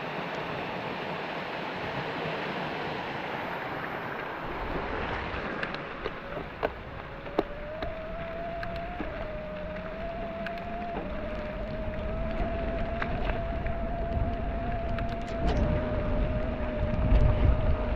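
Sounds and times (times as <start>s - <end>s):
thin whine: 2.6s - 17.9s
wind on microphone: 3.4s - 17.9s
bike tyre noise: 4.4s - 17.9s.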